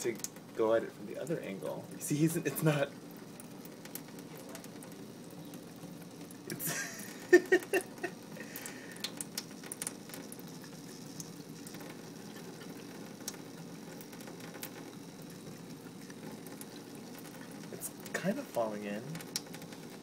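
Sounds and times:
faucet running into sink: 0.0s - 20.0s
cat licking water: 2.5s - 18.5s.

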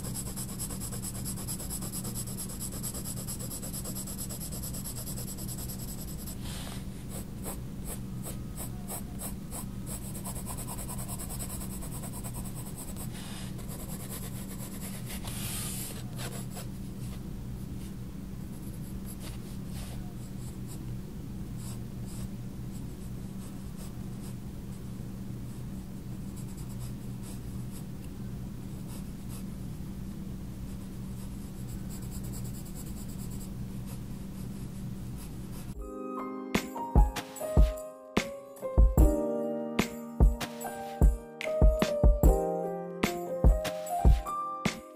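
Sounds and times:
pencil scratching on paper: 0.0s - 16.7s, 30.7s - 35.8s
steady low hum: 0.0s - 35.8s.

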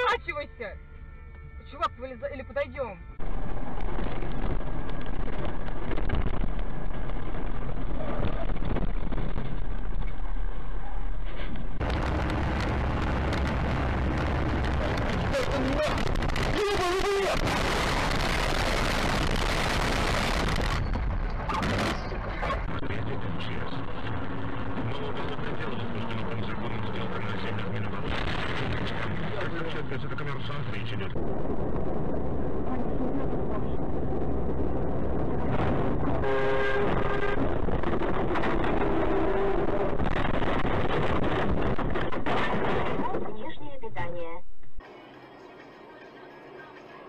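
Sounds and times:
heavy vehicle rumbling inside cab: 3.1s - 47.0s
car horn blast: 36.2s - 37.5s.

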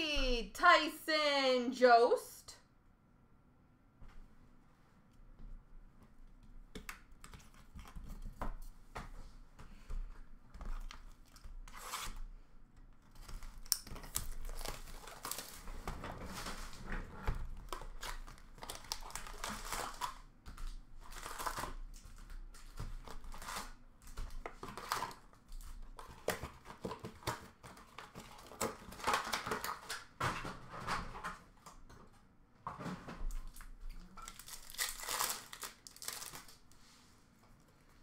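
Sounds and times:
foil wrappers tearing and crinkling: 13.1s - 15.7s, 17.4s - 30.0s, 34.2s - 36.6s.

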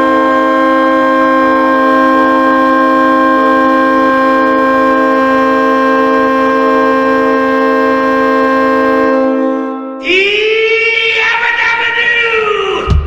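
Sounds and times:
goal horn blasting: 0.0s - 10.1s.

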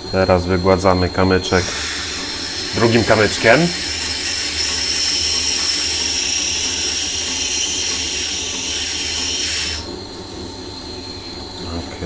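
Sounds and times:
whetstone scraping on stone: 1.6s - 9.9s.

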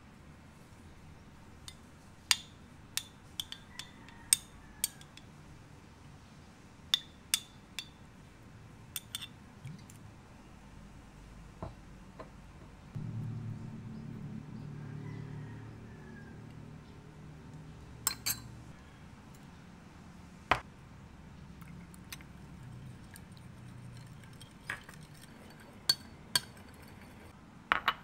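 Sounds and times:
metal spoon clinking on glass: 3.0s - 5.3s, 9.0s - 9.3s, 18.0s - 18.5s, 23.8s - 28.0s
low steady hum: 5.2s - 27.4s.

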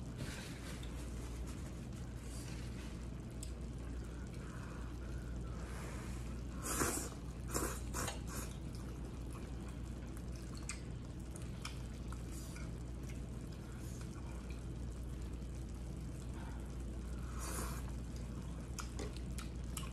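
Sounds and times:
low hum: 0.0s - 19.9s
wet slurping and chewing: 6.3s - 14.6s, 17.4s - 19.9s.

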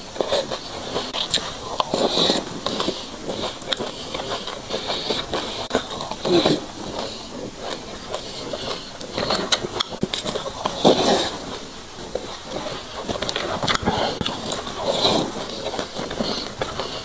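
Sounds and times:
chewing crunchy seeds: 0.0s - 17.0s
mouth sounds: 0.0s - 17.0s.

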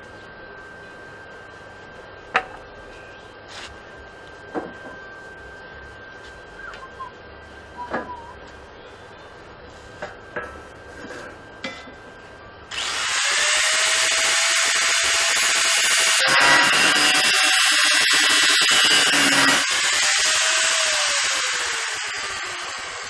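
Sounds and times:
angle grinder motor whining: 12.7s - 23.0s
grinder cutting steel tube: 12.7s - 23.0s.

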